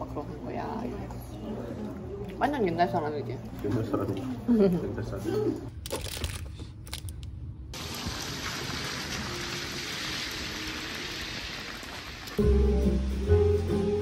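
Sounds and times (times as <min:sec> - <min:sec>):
music: 0:12.4 - 0:14.0.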